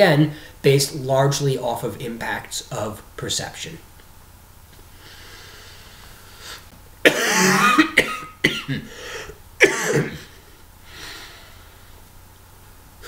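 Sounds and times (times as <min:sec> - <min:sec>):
man coughing: 0:07.0 - 0:08.9, 0:09.6 - 0:10.4.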